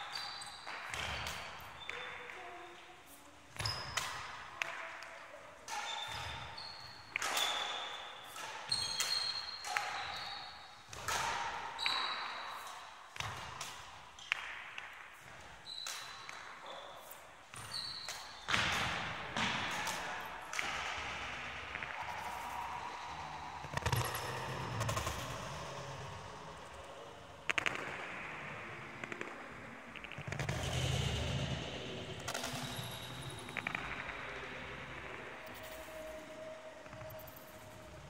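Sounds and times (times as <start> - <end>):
shoe soles squeaking on floor: 0.0 - 4.2, 5.7 - 10.6, 11.8 - 12.8, 15.6 - 18.5.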